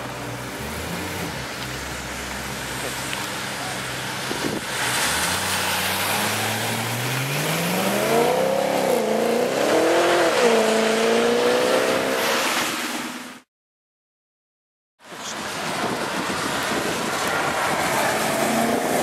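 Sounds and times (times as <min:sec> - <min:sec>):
car engine accelerating hard: 0:04.7 - 0:12.4.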